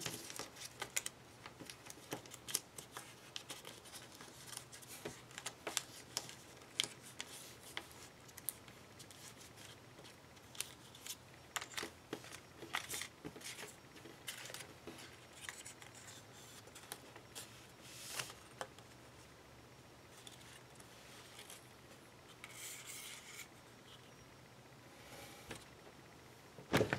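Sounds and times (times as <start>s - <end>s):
paper being folded and creased: 0.0s - 18.5s.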